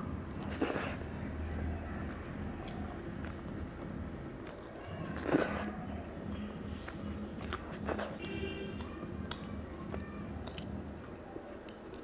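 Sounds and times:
low steady hum: 0.0s - 12.0s
chewing and mouth noises: 0.3s - 12.0s.

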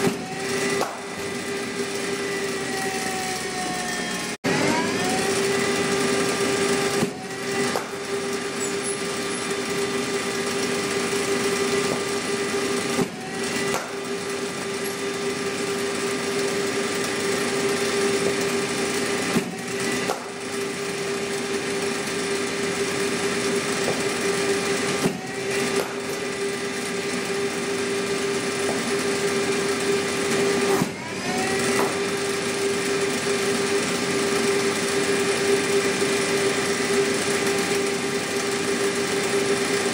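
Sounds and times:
bowling machine wheels humming: 0.0s - 39.9s
ball hitting bat: 13.0s - 14.0s.

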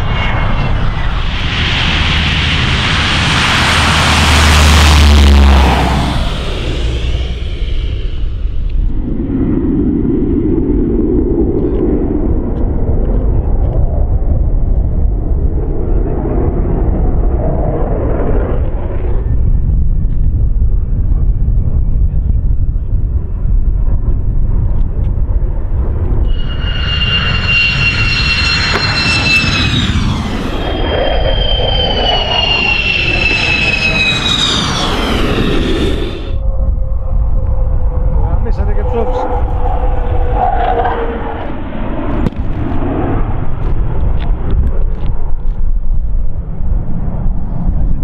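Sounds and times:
jet whine falling in pitch: 0.0s - 14.4s, 25.8s - 44.8s
jet engine rumble: 0.0s - 48.0s.

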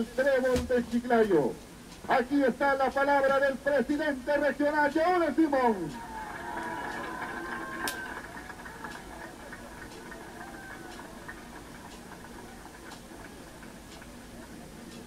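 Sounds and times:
murmur of distant crowd voices: 0.0s - 15.0s
light ticks: 8.9s - 15.0s.

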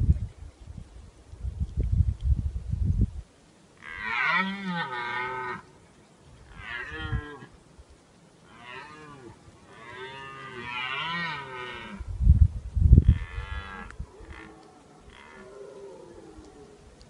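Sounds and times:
deer stag roaring: 13.1s - 16.8s.

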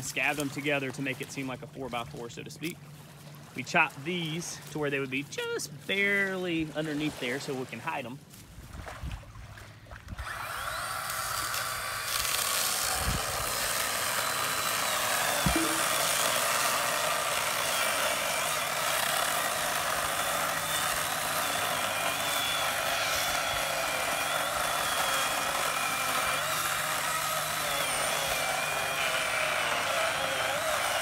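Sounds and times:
power drill boring into wood: 10.2s - 31.0s.

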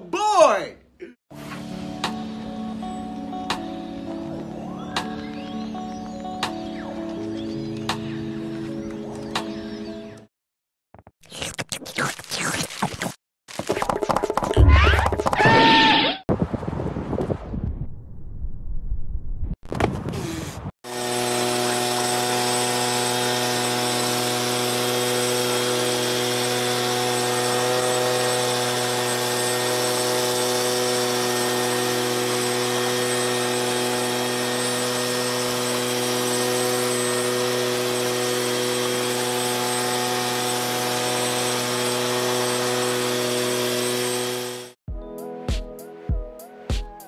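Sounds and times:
leaf blower running: 20.2s - 44.8s.

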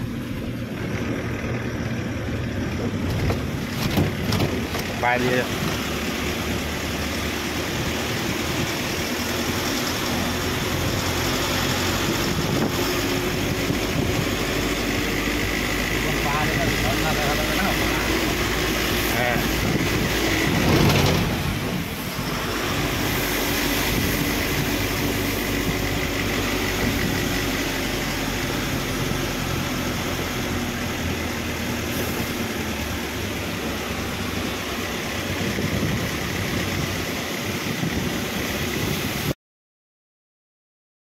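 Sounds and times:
vehicle engine and road noise: 0.0s - 39.4s.

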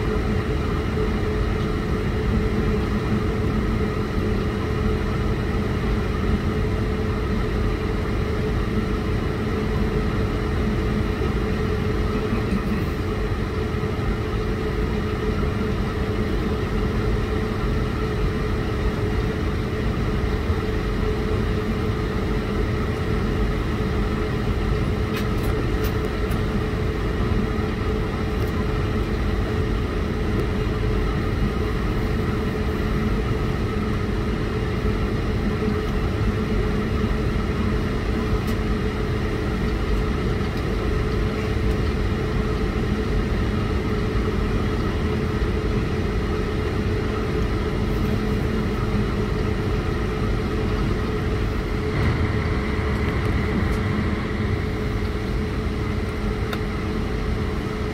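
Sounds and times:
airliner cabin hum: 0.0s - 57.9s
constant mid-pitched tone: 47.7s - 57.9s.

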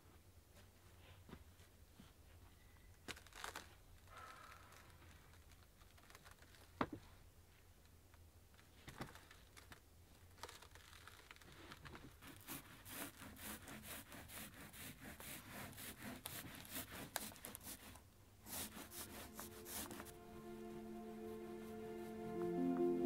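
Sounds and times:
rubbing strokes over wood board: 12.2s - 20.2s.

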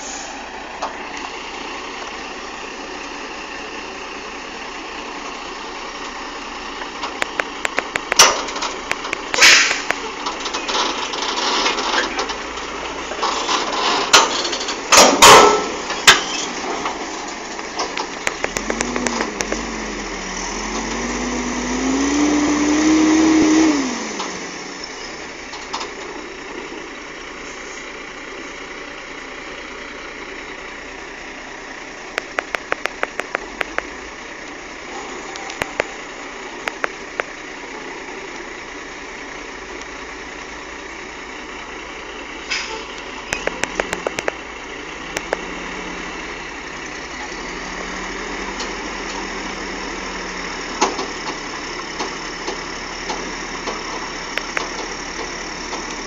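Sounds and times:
diesel truck engine revving: 0.0s - 56.0s.

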